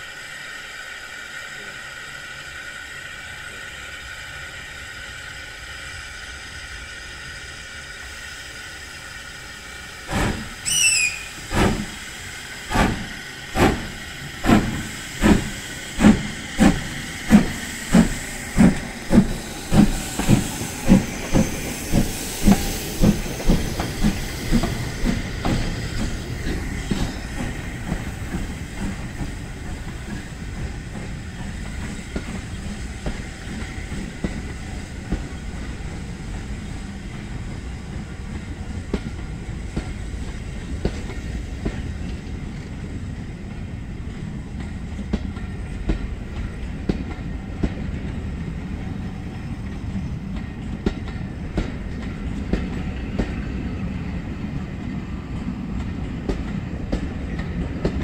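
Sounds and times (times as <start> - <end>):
steam locomotive exhaust beats: 0.0 - 58.0
train rumbling: 0.0 - 58.0.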